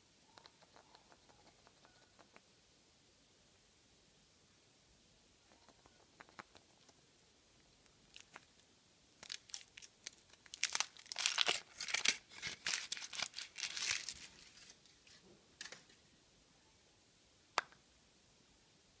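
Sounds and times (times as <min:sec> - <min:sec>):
foil wrapper crinkling: 0:08.1 - 0:08.6, 0:09.2 - 0:15.8.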